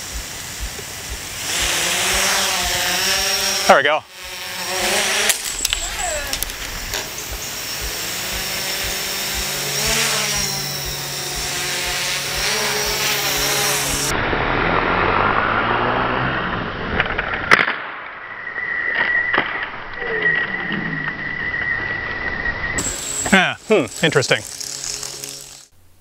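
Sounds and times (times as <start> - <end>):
steady high tone: 0.0 - 14.1
drone propellers whirring: 0.0 - 16.9, 20.4 - 25.7.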